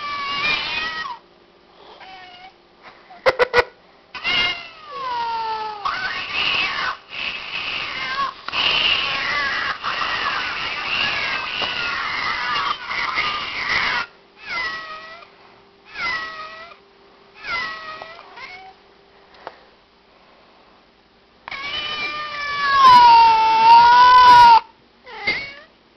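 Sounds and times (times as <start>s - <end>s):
cat meowing: 0.0s - 1.2s, 4.2s - 15.2s, 15.9s - 16.8s, 17.4s - 18.8s, 21.5s - 25.7s
cat yowling: 0.0s - 1.2s, 4.2s - 15.3s, 15.9s - 16.8s, 17.4s - 18.8s, 21.5s - 25.7s.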